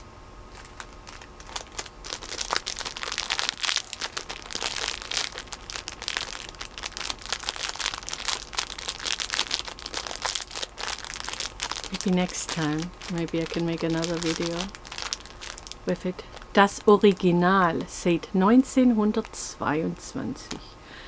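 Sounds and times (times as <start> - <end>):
plastic bag crinkling: 0.5 - 17.2.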